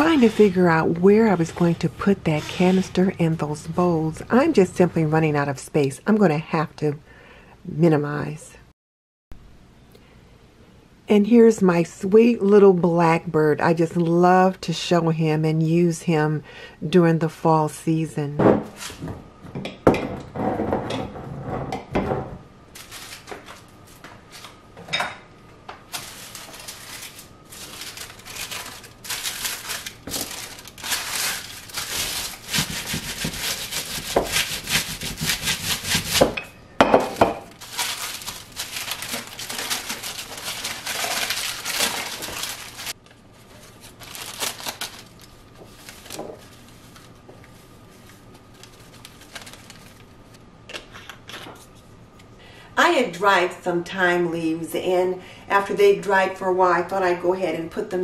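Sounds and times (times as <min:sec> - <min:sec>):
scraping and rubbing: 0:00.0 - 0:03.6, 0:26.0 - 0:36.4
dishes knocking and clinking: 0:19.5 - 0:22.4, 0:36.2 - 0:37.5.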